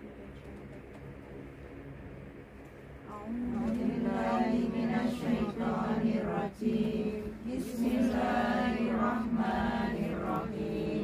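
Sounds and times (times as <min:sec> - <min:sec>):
women chanting in unison: 0:03.2 - 0:11.0.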